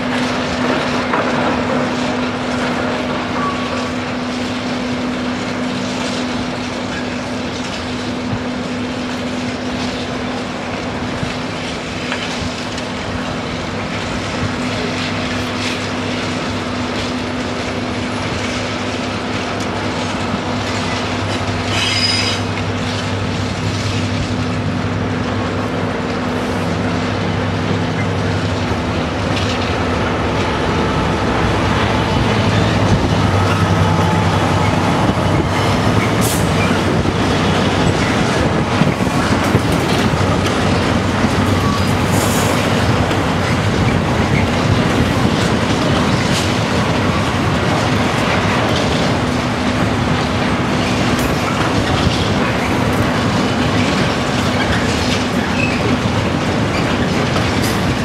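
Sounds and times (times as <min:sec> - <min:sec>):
diesel locomotive engines droning: 0:00.0 - 0:58.0
wheels clicking over rail joints: 0:00.0 - 0:58.0
high wheel squeal: 0:21.7 - 0:22.5.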